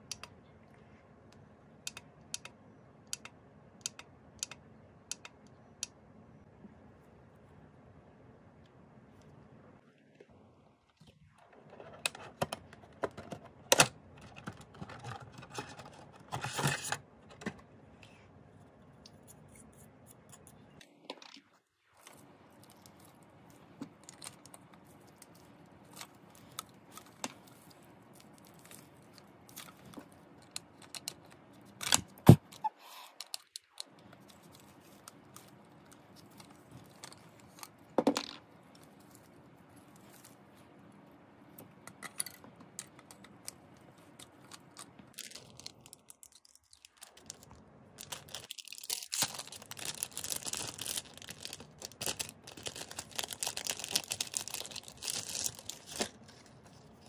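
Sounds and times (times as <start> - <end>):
plastic wrapping crinkling: 43.9 - 57.0.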